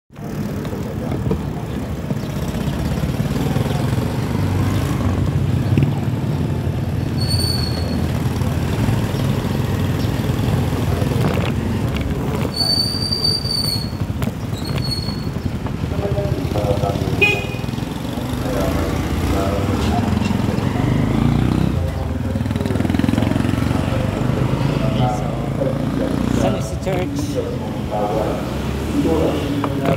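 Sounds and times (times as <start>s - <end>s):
bicycle riding noise and wind: 0.2s - 29.9s
bike brakes squealing: 7.0s - 8.2s, 12.4s - 15.4s.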